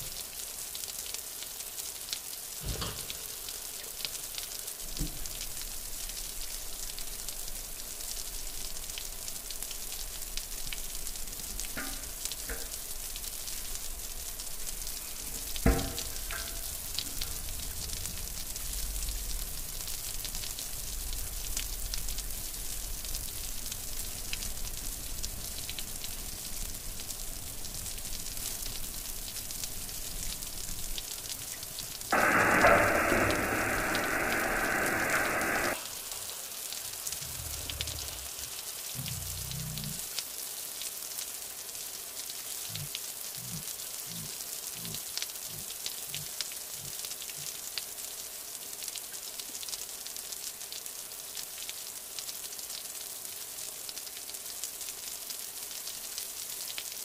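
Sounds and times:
rain pattering on tent fabric: 0.0 - 57.0
loud rushing noise: 32.1 - 35.8
faint ticks: 37.0 - 40.2, 42.6 - 47.9.

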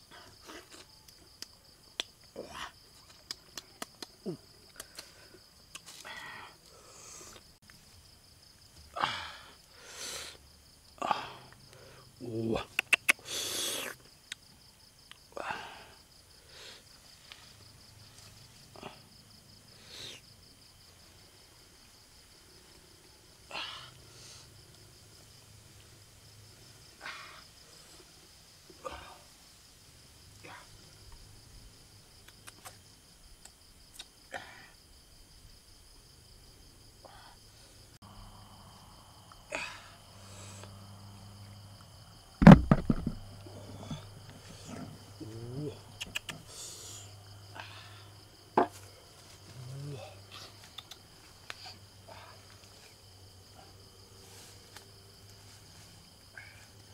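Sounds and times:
crickets trilling: 0.0 - 56.9
loud thump with clicks: 42.4 - 43.2.

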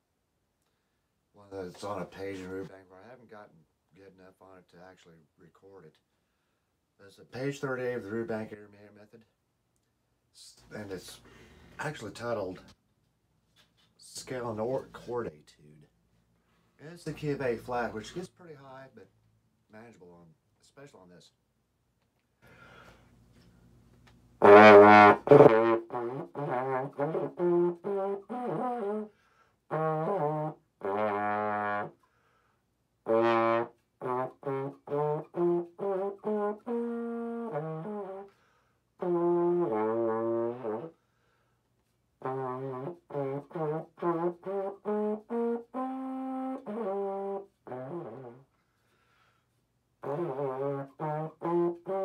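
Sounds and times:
valve trombone playing: 24.4 - 32.0, 33.0 - 38.3, 39.0 - 40.9, 42.2 - 48.5, 50.0 - 52.0.

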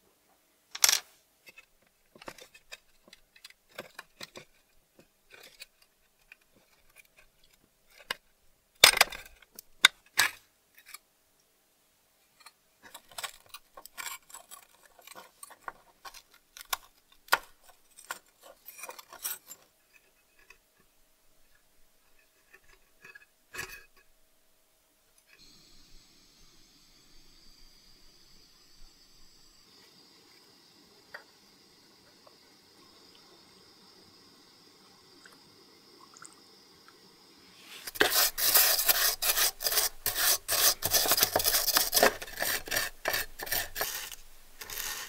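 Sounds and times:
small metal clicks and scrapes: 0.8 - 11.1, 12.3 - 24.1, 37.8 - 45.0.

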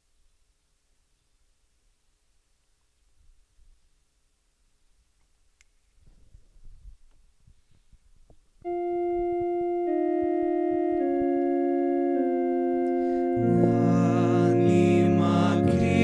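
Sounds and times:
organ playing slow chords: 8.6 - 16.0.

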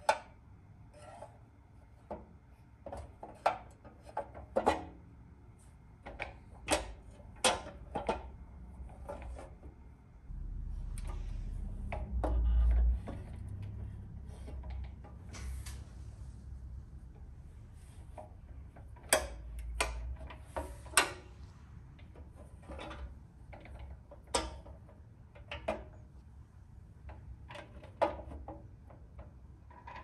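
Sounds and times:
steady low rumble: 10.1 - 18.8, 21.2 - 23.5.

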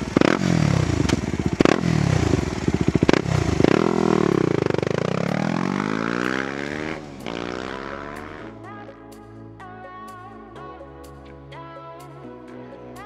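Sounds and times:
motorcycle engine throttle blips: 0.0 - 8.6
motorcycle pulling away: 0.0 - 8.7.

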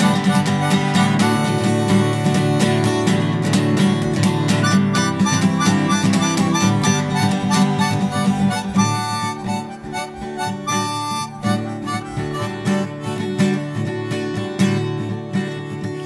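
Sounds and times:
harmonica long held notes: 0.0 - 3.4, 4.4 - 13.4
strummed acoustic guitar: 0.0 - 16.0.

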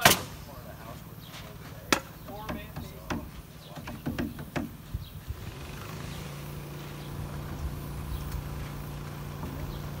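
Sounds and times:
engine humming: 0.0 - 10.0
knocks on wooden wall: 1.9 - 4.8.

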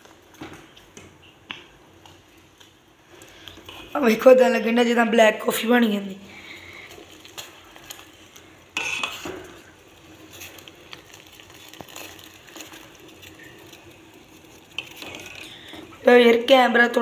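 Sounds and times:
milk pouring into pot: 6.3 - 16.1.

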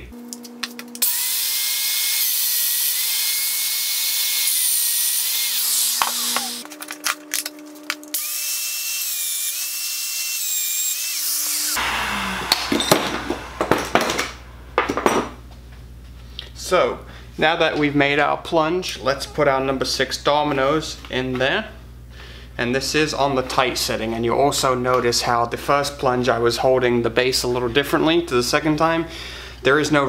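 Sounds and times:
power joiner motor whining: 0.2 - 15.0.

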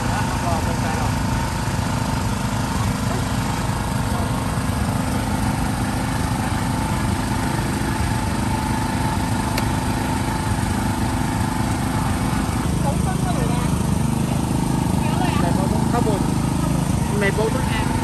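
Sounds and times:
small engine droning: 0.0 - 18.0.

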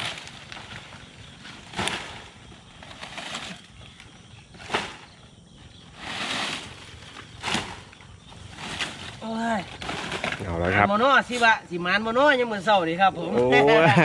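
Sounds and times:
dry palm fronds rustling: 0.0 - 11.5
sharp crack: 4.6 - 5.1.

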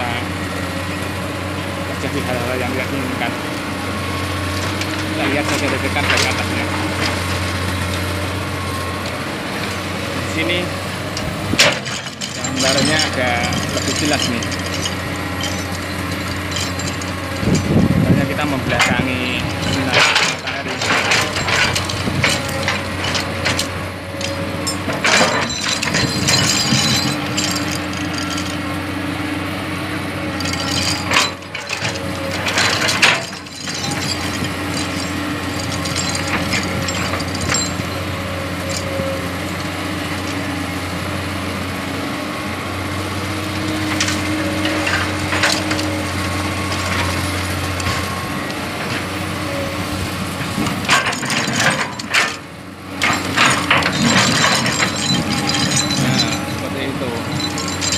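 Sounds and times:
excavator diesel engine under load: 0.0 - 57.9
clattering stones: 53.0 - 56.6, 57.3 - 57.9.

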